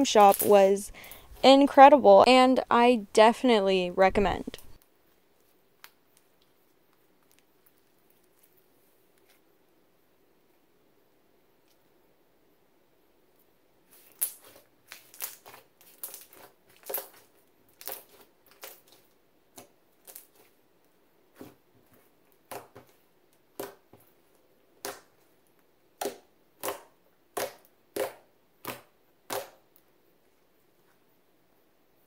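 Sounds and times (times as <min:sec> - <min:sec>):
fingers squishing slime: 0:13.9 - 0:20.6, 0:26.0 - 0:29.8.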